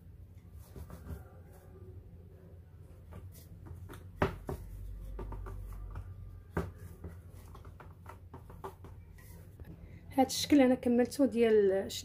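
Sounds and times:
rolling pin knocks on countertop: 0:03.7 - 0:09.0.

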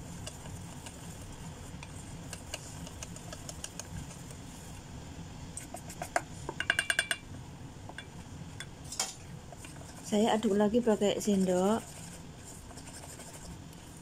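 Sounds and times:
whisk beating batter in metal bowl: 0:00.0 - 0:04.5, 0:09.6 - 0:14.0.

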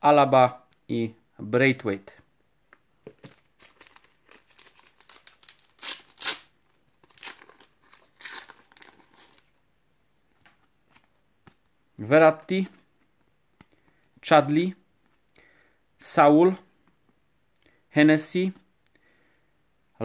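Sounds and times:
foil pack tearing and crinkling: 0:03.6 - 0:09.4.

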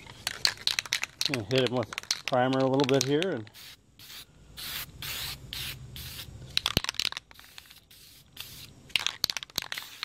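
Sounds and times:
sharp clicks and crackles: 0:00.0 - 0:03.4
aerosol can spraying bursts: 0:03.5 - 0:06.3, 0:07.4 - 0:08.7, 0:09.6 - 0:10.0.

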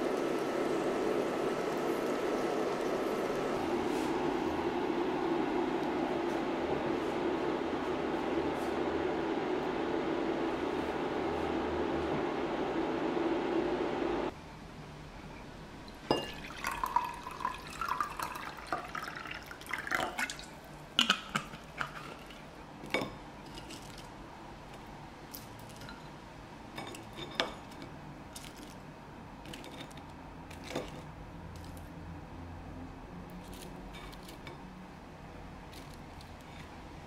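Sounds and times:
glass clinks: 0:16.0 - 0:17.0
water pouring into a glass: 0:16.1 - 0:20.6.

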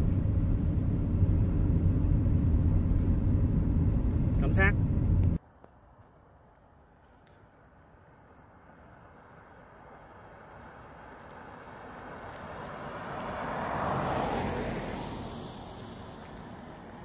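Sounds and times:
vehicle driving past: 0:09.8 - 0:17.0.

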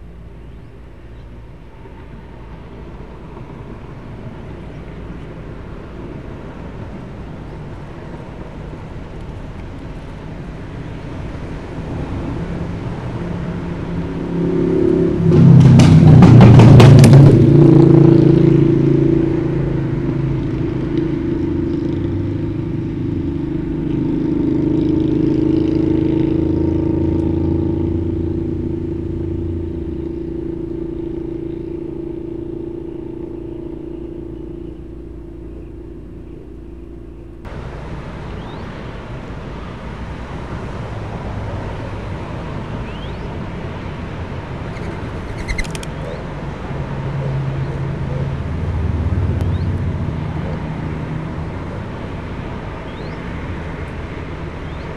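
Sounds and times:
motor engine running: 0:15.5 - 0:37.5.

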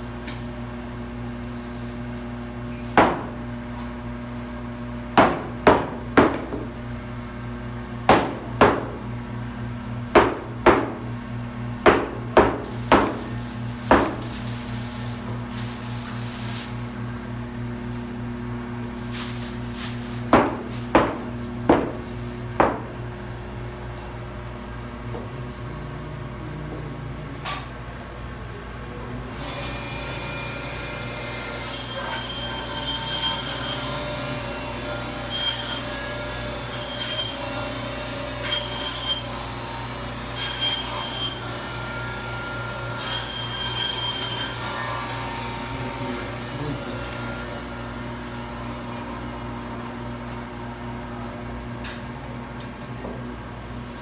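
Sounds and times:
band saw humming: 0:29.3 - 0:50.7.

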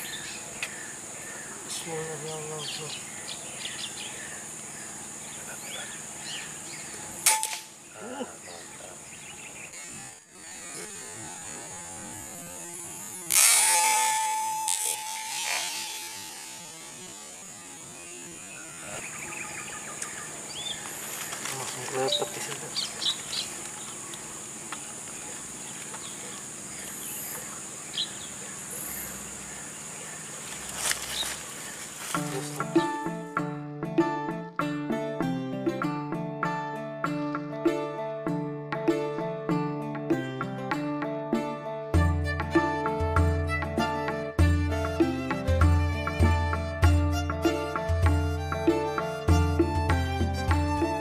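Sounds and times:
high insect drone: 0:00.0 - 0:33.4, 0:42.4 - 0:51.0
air rifle shot: 0:07.2 - 0:07.7.

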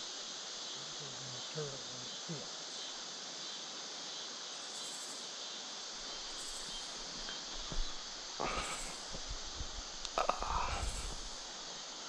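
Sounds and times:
insect chorus hissing: 0:00.0 - 0:12.0.

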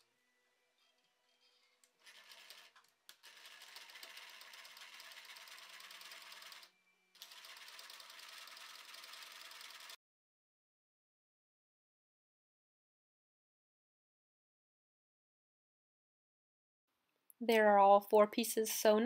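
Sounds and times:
electric sewing machine stitching: 0:02.0 - 0:10.0.

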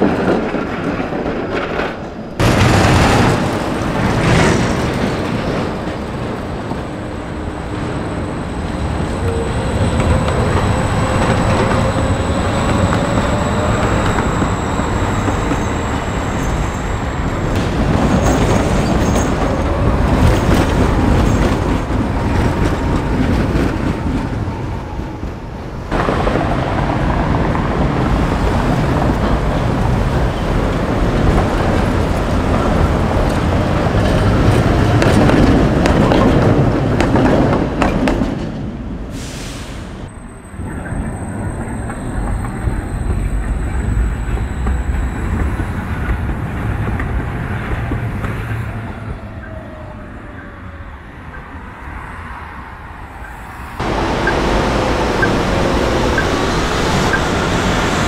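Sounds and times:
tram rumbling on track: 0:00.0 - 0:58.0
street traffic: 0:02.2 - 0:58.0
thin high whine: 0:07.8 - 0:17.6, 0:40.1 - 0:46.3.

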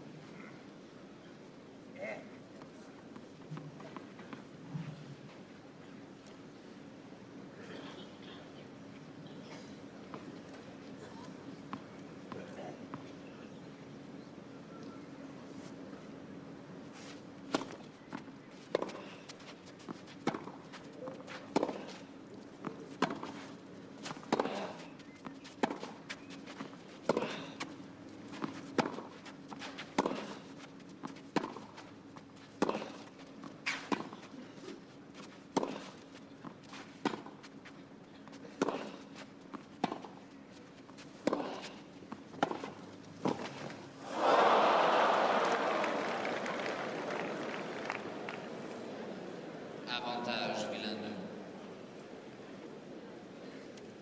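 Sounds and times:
tennis balls struck by rackets: 0:19.8 - 0:23.4, 0:24.1 - 0:26.4, 0:29.8 - 0:31.8, 0:32.5 - 0:33.1, 0:35.5 - 0:37.4, 0:38.5 - 0:39.1, 0:39.8 - 0:40.2, 0:40.9 - 0:43.6.

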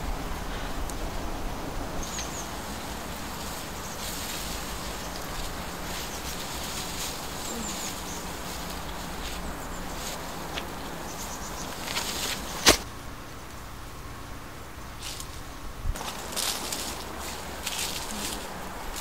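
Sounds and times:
steady background hiss: 0:00.0 - 0:19.0
light rustling: 0:02.0 - 0:12.9, 0:15.0 - 0:19.0.

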